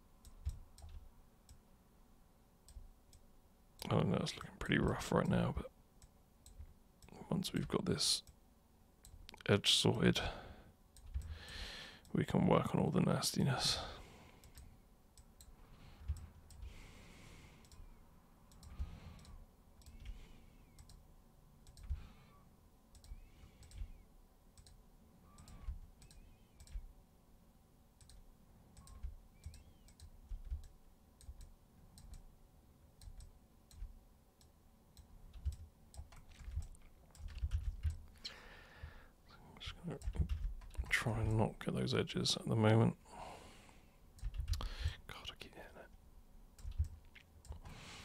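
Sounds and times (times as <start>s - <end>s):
computer mouse clicks: 0.2s - 1.6s, 11.0s - 11.6s, 14.4s - 16.7s, 17.6s - 17.9s, 18.5s - 21.0s, 21.6s - 22.0s, 22.9s - 24.0s, 24.6s - 26.9s, 28.0s - 32.3s, 33.0s - 38.1s, 46.6s - 47.8s.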